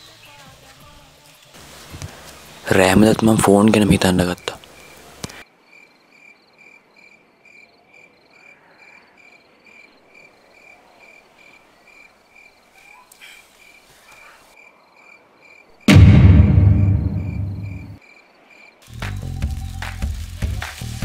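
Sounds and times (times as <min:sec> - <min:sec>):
cricket chirping: 0:05.6 - 0:15.8, 0:16.8 - 0:18.9.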